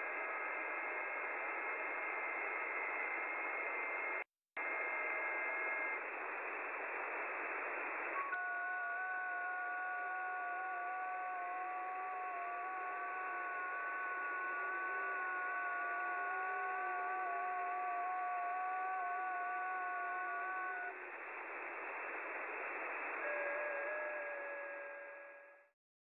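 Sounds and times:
radio band hiss: 4.6s - 8.2s, 16.7s - 25.2s
digital radio tones: 4.6s - 25.4s.

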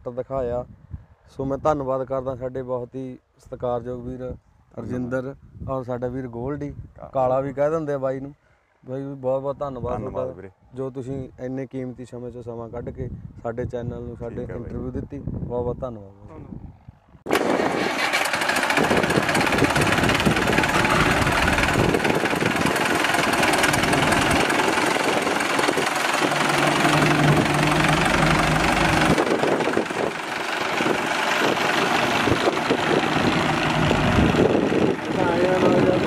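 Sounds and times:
tractor diesel engine running: 17.3s - 36.0s.

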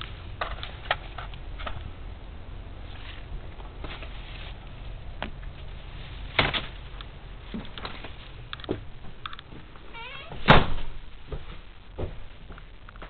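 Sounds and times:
footsteps stepping into trailer: 7.4s - 13.0s.

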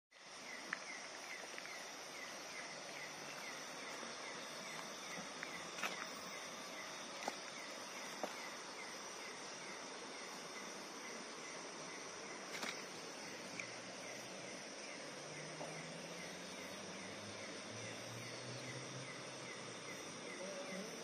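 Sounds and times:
insects chirping: 0.1s - 21.0s.

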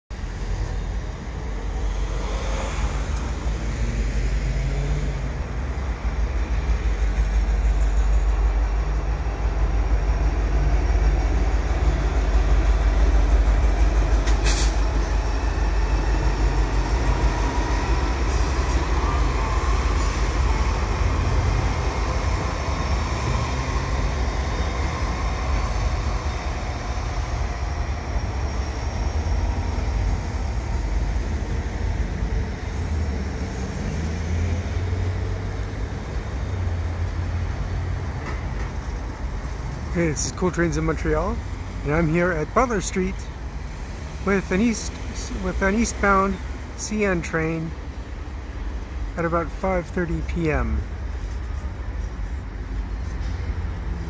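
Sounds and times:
diesel locomotive engines rumbling: 0.1s - 54.0s
freight cars rolling: 0.2s - 54.0s.

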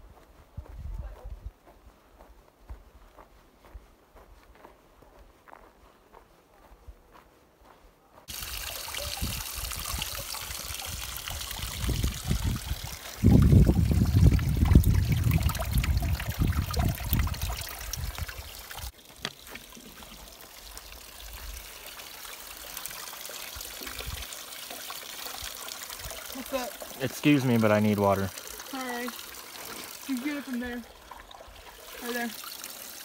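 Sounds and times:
bottle filling in water: 8.3s - 33.0s
water splashing into metal trough: 8.3s - 33.0s.

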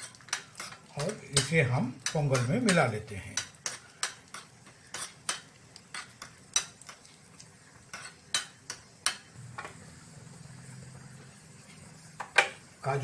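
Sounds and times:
metal spoon clinking in pan: 0.0s - 7.0s, 7.9s - 9.3s.

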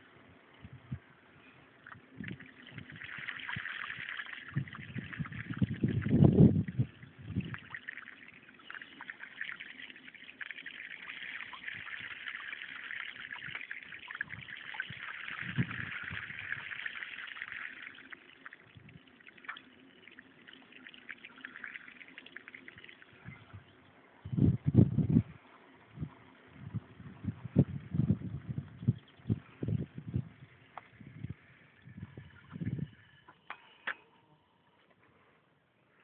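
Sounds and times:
floodwater splashing: 1.8s - 23.2s.

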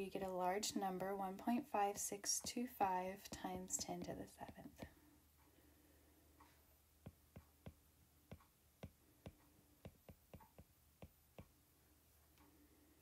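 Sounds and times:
stylus tapping on glass screen: 7.0s - 11.5s.

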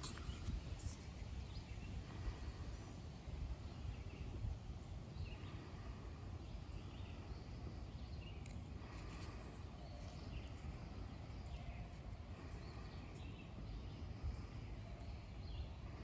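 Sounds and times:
faint bird chirps: 5.2s - 16.0s.

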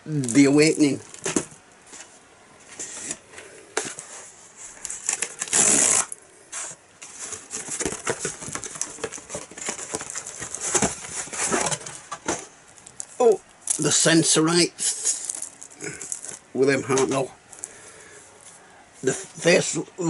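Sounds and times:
packaging clicks and rustles: 2.8s - 13.9s, 14.9s - 16.4s
cardboard tear strip ripping: 5.0s - 6.2s.

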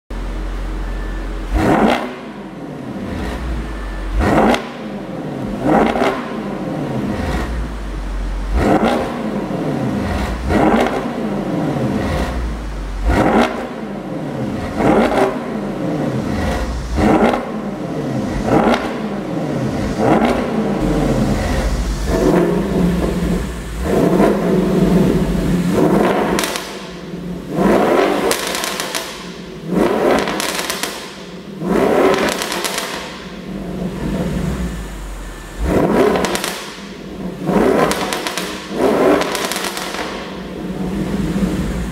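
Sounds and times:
car engine revving: 0.2s - 41.9s
exhaust pops: 18.4s - 35.0s, 35.6s - 41.9s.

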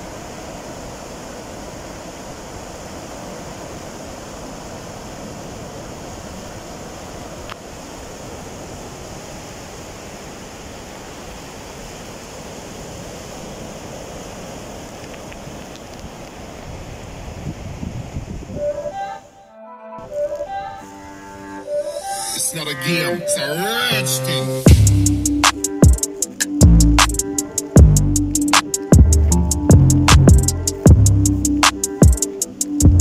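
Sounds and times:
waves breaking on shore: 0.0s - 19.2s.

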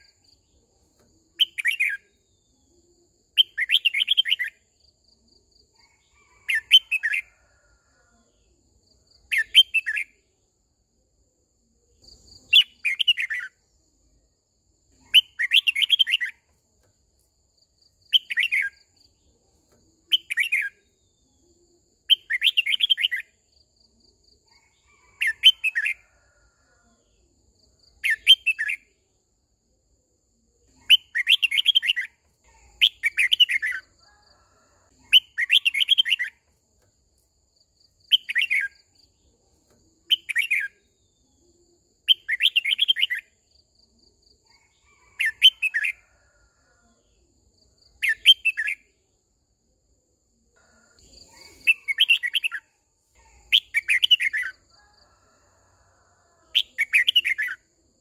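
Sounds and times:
bird singing whistled notes: 1.4s - 2.7s, 3.3s - 4.6s, 15.0s - 16.4s, 20.1s - 21.0s, 30.8s - 32.2s, 48.0s - 48.9s.

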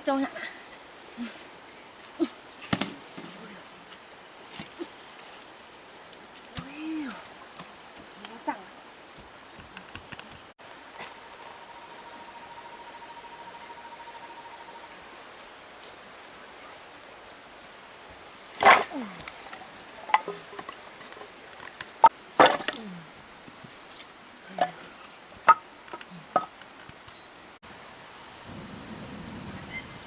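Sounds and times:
firewood sticks knocking together: 18.6s - 23.6s, 25.4s - 26.7s.

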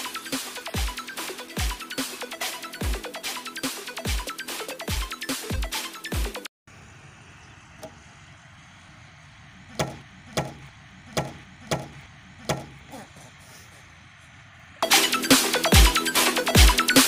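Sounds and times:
faint outdoor background: 0.0s - 17.0s
sharp short knocks: 9.7s - 12.9s.

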